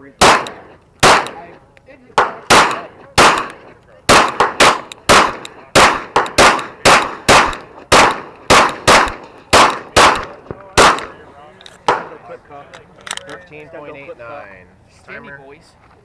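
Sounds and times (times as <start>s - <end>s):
pistol shots with echo: 0.1s - 1.6s, 2.2s - 11.2s, 11.9s - 12.2s.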